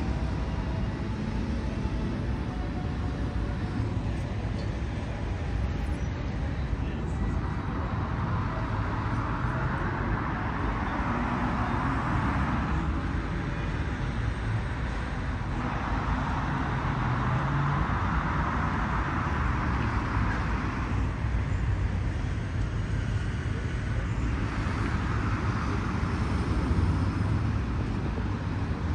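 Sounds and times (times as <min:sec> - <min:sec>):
road traffic rumble: 0:00.0 - 0:28.9
vehicles passing: 0:00.0 - 0:28.9.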